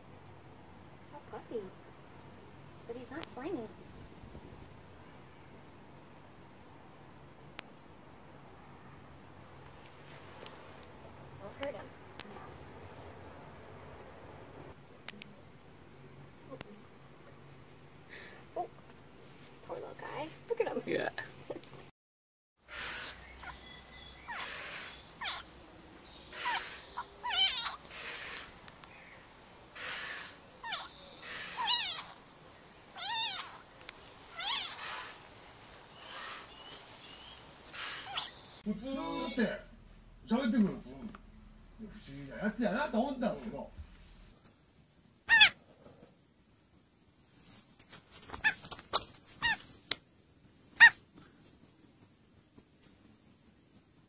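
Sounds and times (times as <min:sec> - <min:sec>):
high-pitched animal calls: 0:22.7 - 0:29.1, 0:29.8 - 0:33.7, 0:34.3 - 0:35.3, 0:36.0 - 0:36.7, 0:37.6 - 0:39.4, 0:45.3 - 0:45.6, 0:48.4 - 0:49.7, 0:50.8 - 0:51.0
cat meowing: 0:24.3 - 0:25.5, 0:26.3 - 0:28.5, 0:29.8 - 0:32.2, 0:32.9 - 0:33.7, 0:34.3 - 0:35.2, 0:45.3 - 0:45.6.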